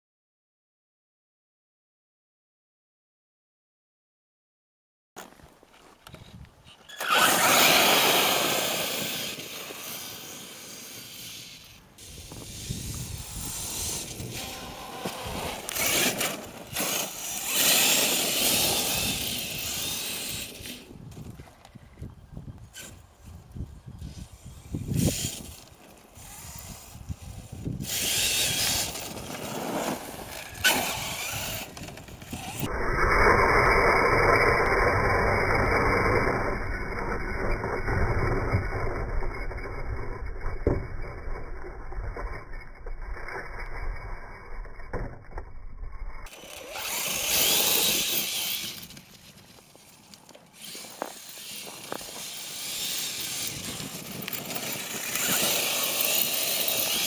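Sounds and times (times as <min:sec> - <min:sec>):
tyres churning through snow: 0:06.8 - 0:20.9, 0:25.0 - 0:39.5, 0:46.3 - 0:57.0
rc truck electric motor: 0:06.9 - 0:21.0, 0:24.0 - 0:57.0.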